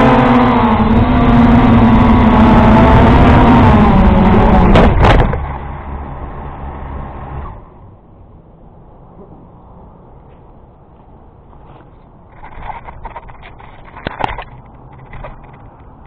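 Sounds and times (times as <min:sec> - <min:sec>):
drone propellers buzzing: 0:00.0 - 0:07.8.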